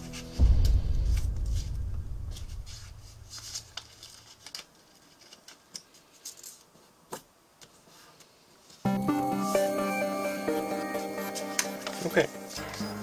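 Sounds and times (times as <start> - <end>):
low rumble: 0.4 - 4.2
paper being folded and creased: 3.3 - 6.9.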